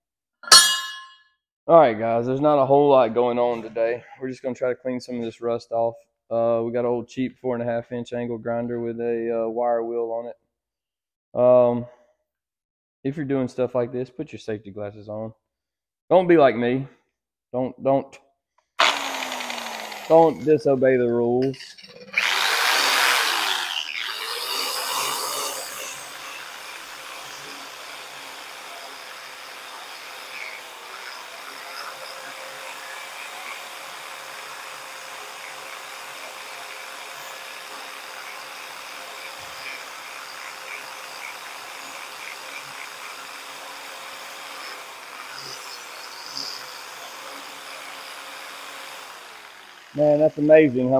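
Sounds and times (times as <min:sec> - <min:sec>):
angle grinder wire wheel on steel: 0:18.8 - 0:20.7, 0:21.4 - 0:33.6, 0:44.6 - 0:48.0.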